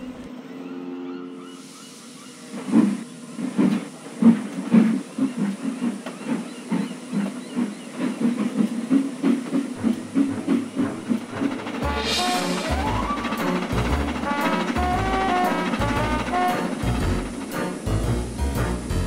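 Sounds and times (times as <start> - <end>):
steam hissing: 1.5 - 19.0
steam engine chuffing: 2.5 - 19.0.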